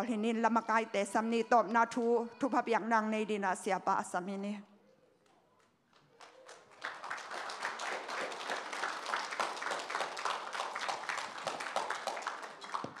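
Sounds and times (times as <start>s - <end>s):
crowd applauding: 6.0s - 13.0s.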